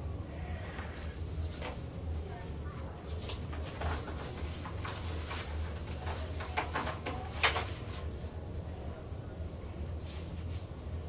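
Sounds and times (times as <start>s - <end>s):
steady low hum: 0.0s - 11.0s
paper rustling and pages turning: 3.1s - 8.1s.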